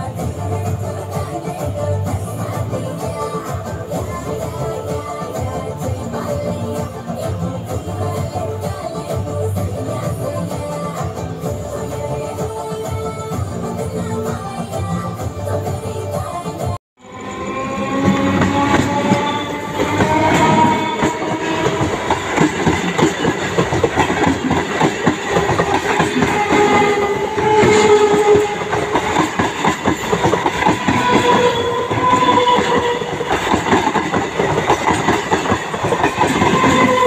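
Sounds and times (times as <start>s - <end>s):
train wheels clattering over rails: 17.6s - 37.0s.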